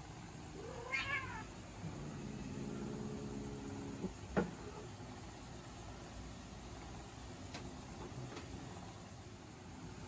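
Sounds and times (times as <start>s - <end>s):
cat growling: 0.5s - 4.0s
cat yowling: 0.6s - 1.6s.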